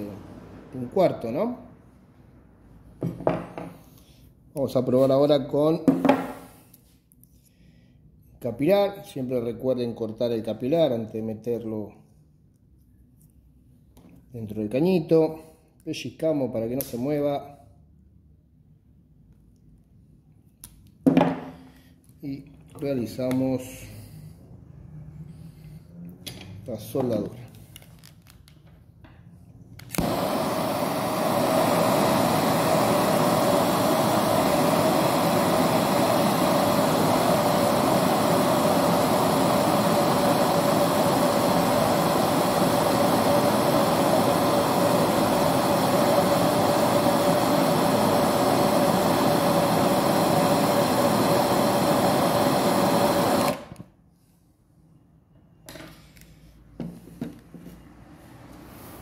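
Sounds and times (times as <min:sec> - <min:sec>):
brazing torch hissing: 0:06.2 - 0:06.8, 0:29.9 - 0:53.9.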